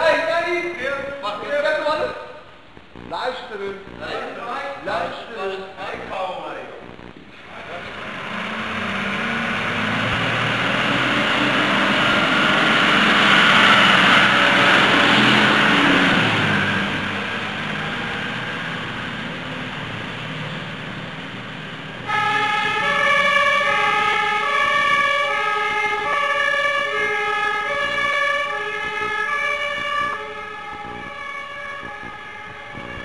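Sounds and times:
truck engine pulling away: 7.4s - 33.0s
two-tone siren: 22.0s - 33.0s.

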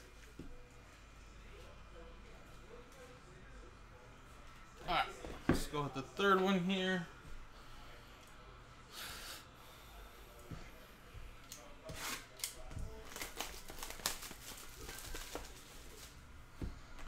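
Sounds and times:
wrapping crinkling and tearing: 12.0s - 16.2s.

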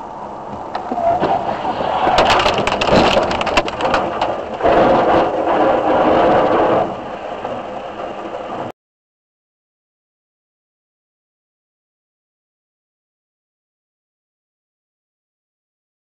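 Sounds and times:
loud rough noise: 0.0s - 8.7s
vehicle collision cracks and crunching: 0.5s - 8.6s.

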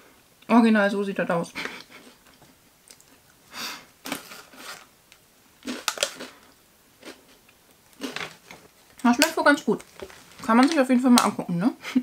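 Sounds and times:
snack pouch rustling: 4.0s - 4.9s, 5.6s - 7.3s, 7.9s - 10.8s
crunching cereal snack chewing: 5.6s - 10.5s.

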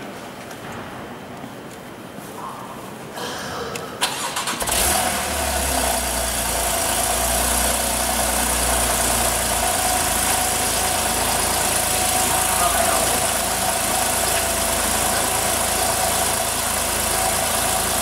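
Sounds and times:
engine starter cranking: 4.0s - 6.4s
car engine idling: 4.1s - 18.0s.

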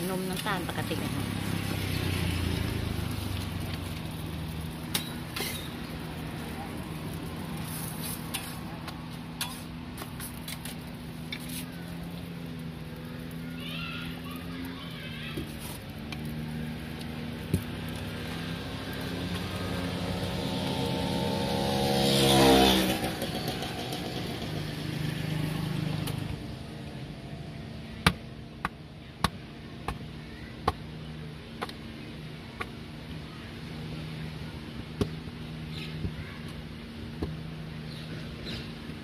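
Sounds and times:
vehicle engine passing by: 0.6s - 8.8s, 13.3s - 27.9s.

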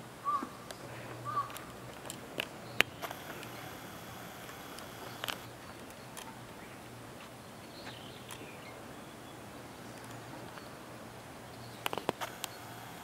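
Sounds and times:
steady background hiss: 0.0s - 13.0s
sharp clicks: 1.5s - 5.5s, 11.8s - 13.0s.

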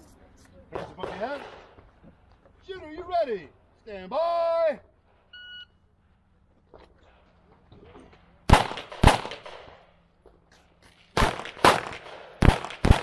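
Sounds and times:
handgun shots with echo: 8.5s - 9.8s, 11.2s - 13.0s.

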